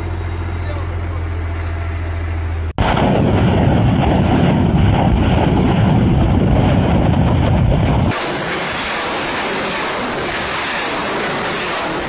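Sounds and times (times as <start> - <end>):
rocket launcher firing roar: 2.8 - 12.0.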